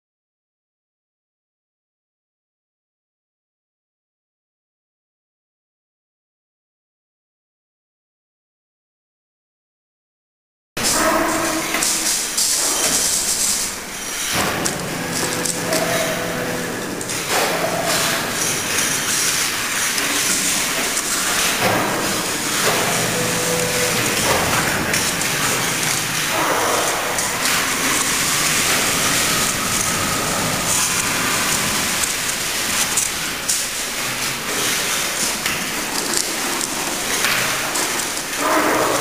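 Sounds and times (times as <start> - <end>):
hissing factory hall noise: 10.8 - 39.0.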